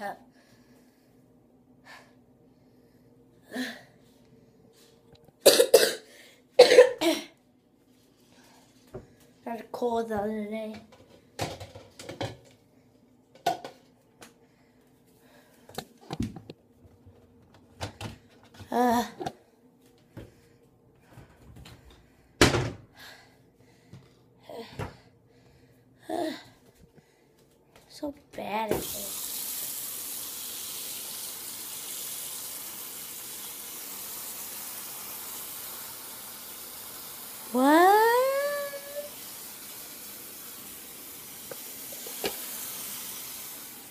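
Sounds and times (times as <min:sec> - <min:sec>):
faint steady hum: 0:00.0 - 0:43.9
tap water running into sink: 0:28.7 - 0:43.9.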